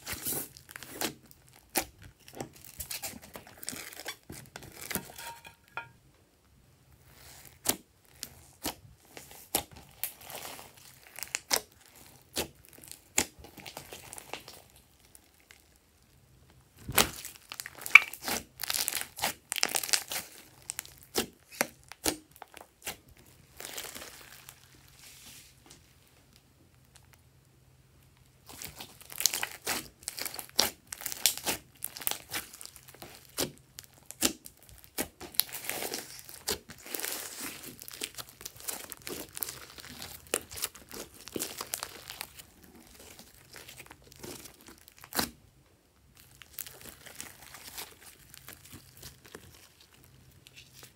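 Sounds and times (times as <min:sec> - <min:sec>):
hands squishing slime: 0:07.2 - 0:15.5, 0:16.8 - 0:24.6, 0:28.4 - 0:45.4, 0:46.2 - 0:50.9.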